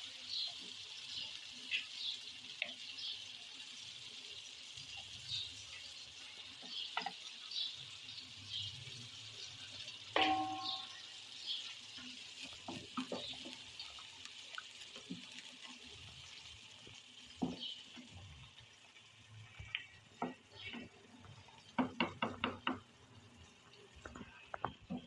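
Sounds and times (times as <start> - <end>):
spoon knocking on metal pot: 10.2 - 11.0
wooden spoon stirring in pot: 11.6 - 18.6, 19.4 - 22.9.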